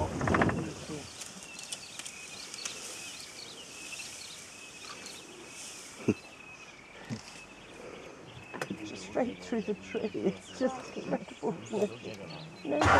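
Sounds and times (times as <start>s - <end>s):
insects buzzing: 0.0s - 12.8s
birds chirping: 0.0s - 12.9s
faint cracks: 0.2s - 3.0s.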